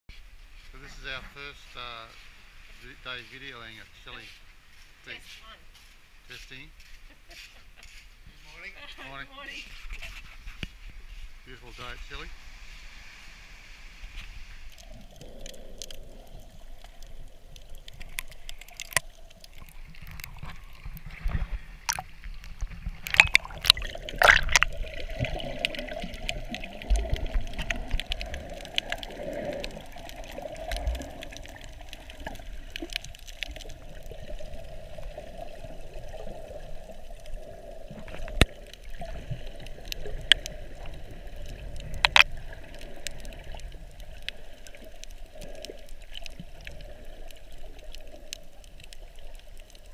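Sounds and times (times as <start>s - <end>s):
underwater sloshing and gurgling: 8.2s - 49.9s
sharp clicks and knocks: 42.0s - 42.3s.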